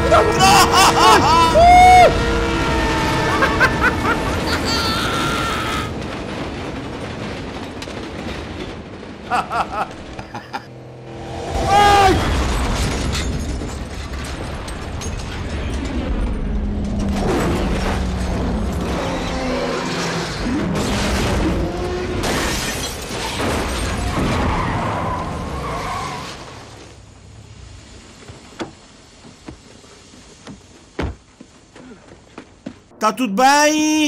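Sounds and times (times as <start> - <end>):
car crash with breaking glass: 12.1 - 27.0.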